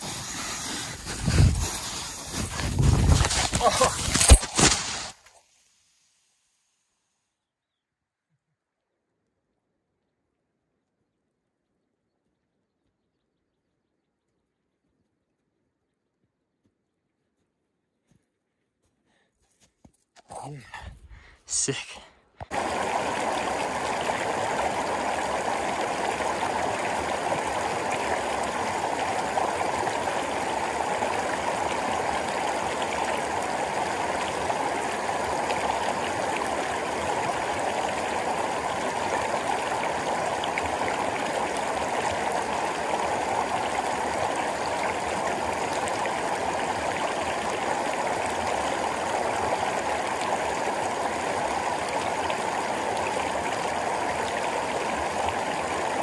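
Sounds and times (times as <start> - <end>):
stream rushing over rocks: 0.0 - 5.2, 22.5 - 56.0.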